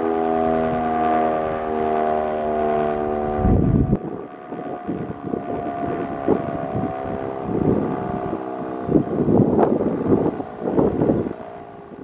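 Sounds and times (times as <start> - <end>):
siren sounding a steady chord: 0.0 - 12.0
wind buffeting microphone: 2.8 - 12.0.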